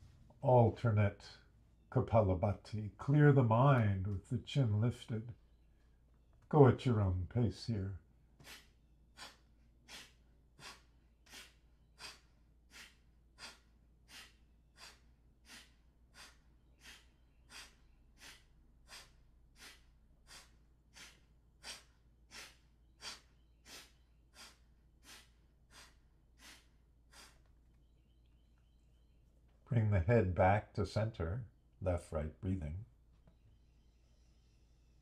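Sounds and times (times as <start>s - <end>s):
forceful nasal exhalations: 8.4s - 27.6s.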